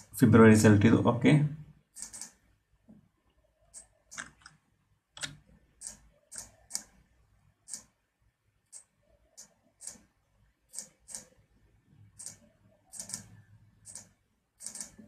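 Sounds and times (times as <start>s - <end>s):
computer mouse clicking: 1.9s - 2.4s, 3.7s - 4.6s, 5.2s - 7.0s, 7.6s - 8.0s, 8.6s - 10.1s, 10.7s - 11.4s, 12.1s - 15.0s.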